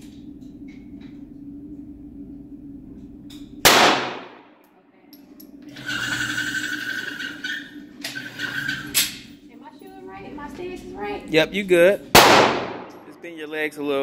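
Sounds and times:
low hum: 0.0s - 14.0s
pistol shot with echo: 3.6s - 4.5s, 12.2s - 13.0s.

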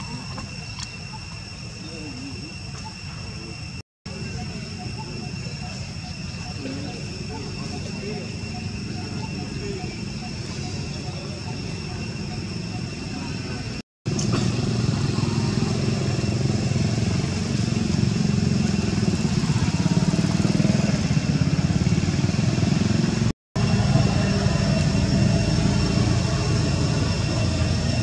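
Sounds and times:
low pulsing engine-like drone: 0.0s - 28.0s
faint high whine: 23.6s - 28.0s.

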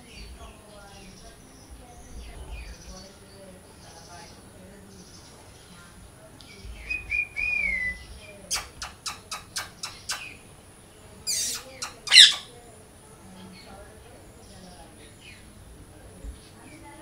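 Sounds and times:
macaw warbling whistle: 6.9s - 10.4s, 11.3s - 12.5s
sharp clicks: 8.5s - 10.3s
macaw harsh squawks: 11.2s - 12.6s.

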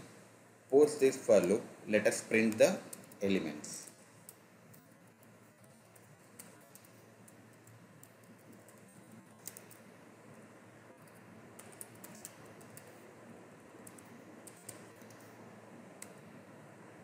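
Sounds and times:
background hiss: 0.0s - 17.0s
keyboard typing clicks: 3.8s - 9.9s, 11.0s - 13.0s, 13.8s - 15.4s.

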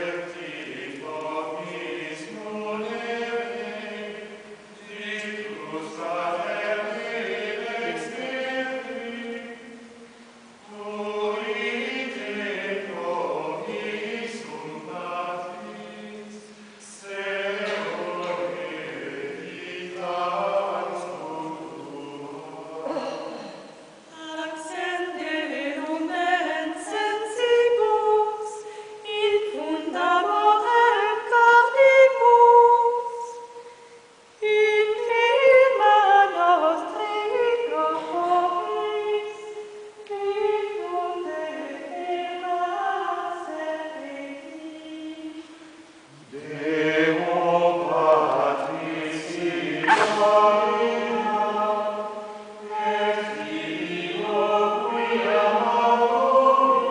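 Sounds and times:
men's voices chanting: 46.1s - 51.9s
women's voices chanting: 49.6s - 51.8s.

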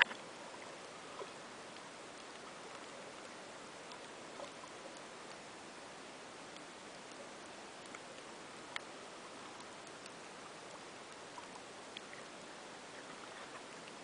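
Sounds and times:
faint clicks: 0.0s - 5.5s, 6.5s - 14.0s
faint underwater hiss: 0.0s - 14.0s.

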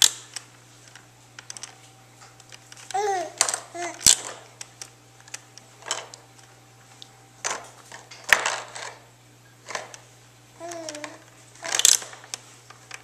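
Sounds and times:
plastic toys clicking and rattling: 2.4s - 4.4s, 5.3s - 6.2s, 9.7s - 10.0s, 10.6s - 13.0s.

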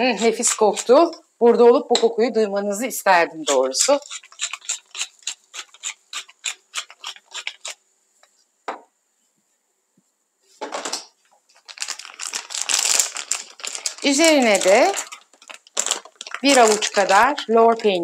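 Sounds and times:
crackling rustling noise: 9.2s - 18.0s.

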